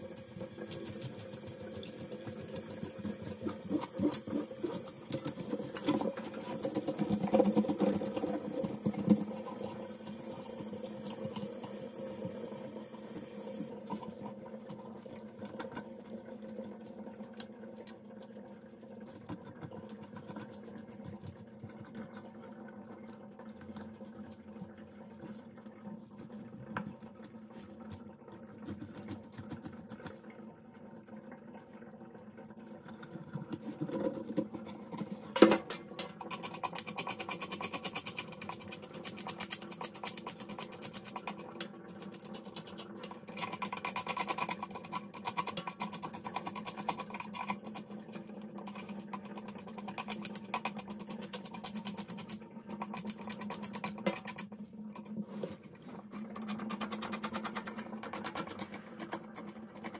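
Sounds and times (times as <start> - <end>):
tap running: 0.2 - 14.9.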